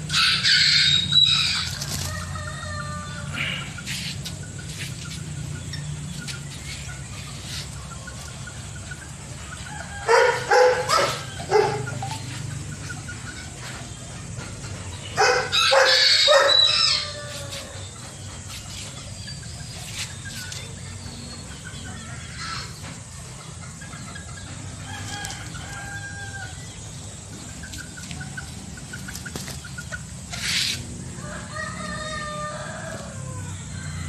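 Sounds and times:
chickens clucking: 0.0 - 34.0
rooster crowing: 9.7 - 12.0, 15.2 - 17.8, 24.8 - 26.7, 31.2 - 34.0.

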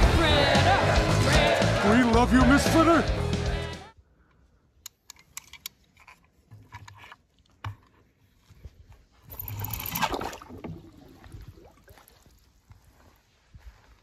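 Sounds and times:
water bubbling: 9.4 - 12.3.

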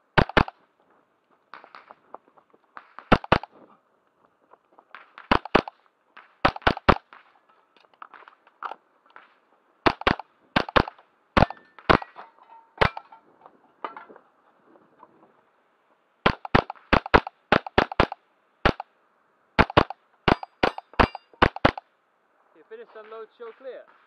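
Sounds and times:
rifle shots: 0.1 - 0.6, 2.8 - 3.6, 4.9 - 7.4, 9.1 - 12.1, 16.2 - 18.9, 19.6 - 21.9
steel targets ringing: 20.3 - 21.4.

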